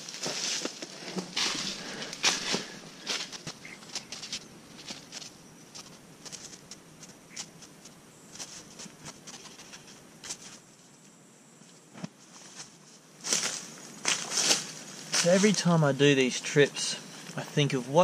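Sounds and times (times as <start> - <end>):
footsteps on dry leaves: 0.0 - 10.6, 12.2 - 15.9
gear rustling and crackling: 0.0 - 10.6.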